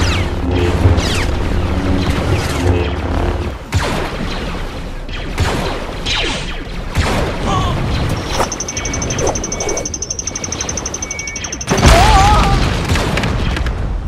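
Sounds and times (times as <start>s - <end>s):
steady low hum: 0.0s - 4.9s.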